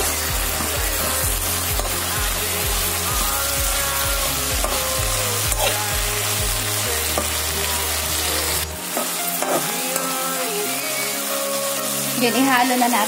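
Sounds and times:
metal utensil scraping pan: 0.0s - 2.5s, 4.2s - 6.0s, 8.2s - 10.1s
low music beat: 0.0s - 10.3s
leaves sizzling in hot oil: 0.0s - 13.0s.

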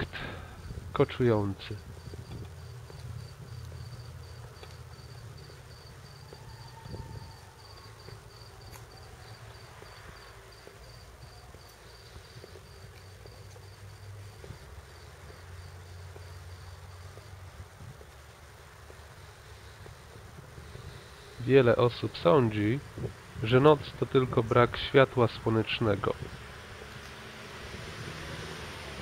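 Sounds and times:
faint low rumble: 0.0s - 25.1s
cricket chirping: 1.6s - 18.1s.

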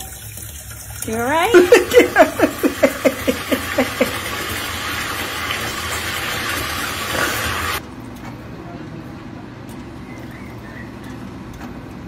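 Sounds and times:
tap water running into bathtub: 0.0s - 7.8s.

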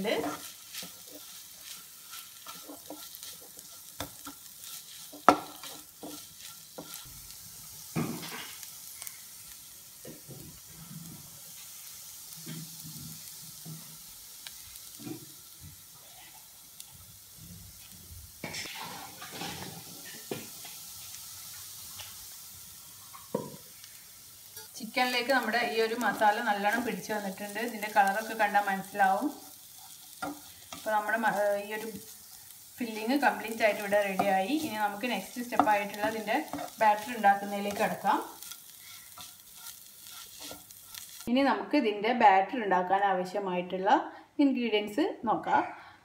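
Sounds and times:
spatula scraping a pan: 0.0s - 7.4s, 16.0s - 16.9s, 17.8s - 21.1s, 24.6s - 41.3s
food sizzling in a pan: 0.0s - 42.6s.

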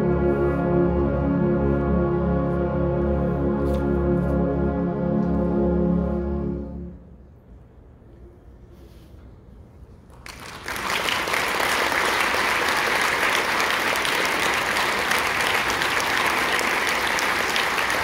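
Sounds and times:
audience applause: 10.2s - 18.0s.

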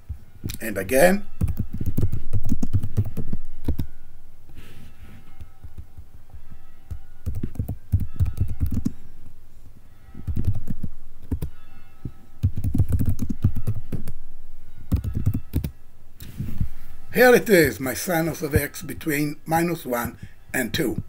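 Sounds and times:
computer keyboard typing: 1.4s - 3.9s, 6.9s - 9.0s, 10.3s - 11.5s, 12.4s - 14.2s, 14.9s - 15.7s.

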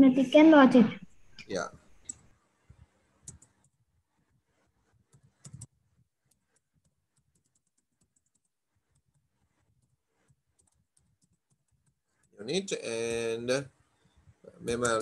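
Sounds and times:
keyboard typing: 1.5s - 2.3s, 3.2s - 3.8s, 5.1s - 12.4s, 14.7s - 15.0s.

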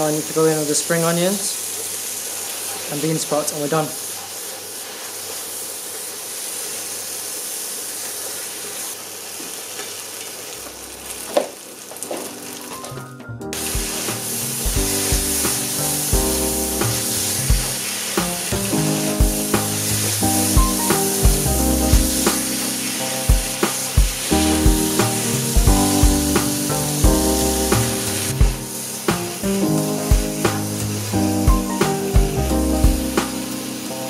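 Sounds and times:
noodles sizzling in hot oil: 0.0s - 12.9s, 13.6s - 34.0s
background music with a beat: 12.8s - 33.7s.

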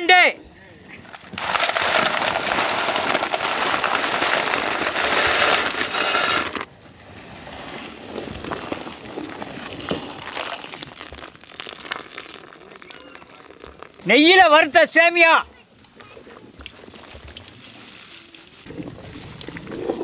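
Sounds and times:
sugar crystals pouring into pot: 1.3s - 6.6s, 10.2s - 14.1s.

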